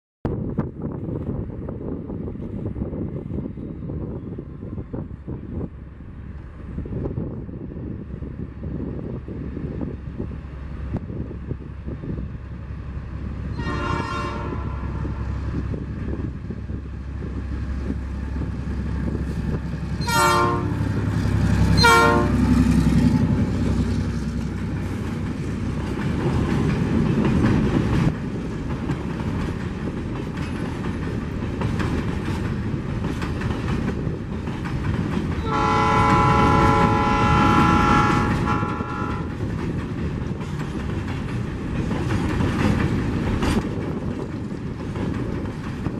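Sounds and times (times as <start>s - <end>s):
locomotive engine rumble: 0.3s - 45.9s
locomotive horn blasts: 13.5s - 15.3s, 20.0s - 21.0s, 21.8s - 22.5s, 35.4s - 39.3s
train wheels clacking on rails: 17.2s - 45.9s.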